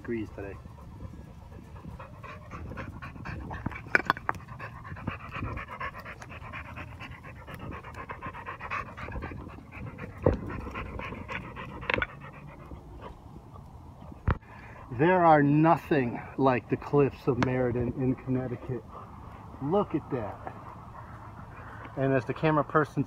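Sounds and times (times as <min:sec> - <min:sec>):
dog panting: 0:00.0 - 0:15.0, 0:18.0 - 0:23.0.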